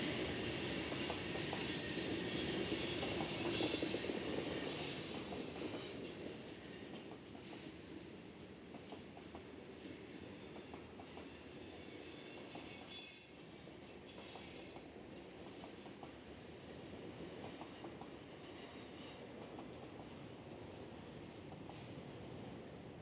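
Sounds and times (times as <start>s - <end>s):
train wheels clicking on rails: 0.0s - 20.2s
freight train rumble: 0.0s - 23.0s.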